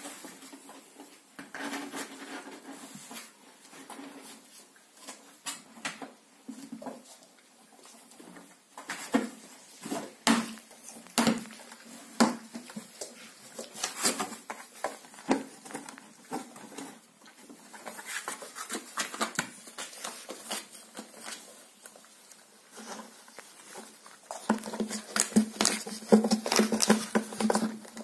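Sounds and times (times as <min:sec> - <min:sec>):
puppies scrambling in cardboard box: 0:12.4 - 0:28.0.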